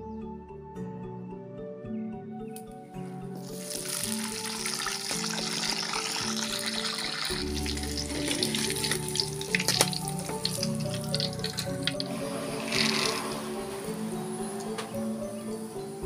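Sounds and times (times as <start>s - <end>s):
background music: 0.0s - 16.0s
hot oil sizzling in a wok: 3.5s - 12.0s.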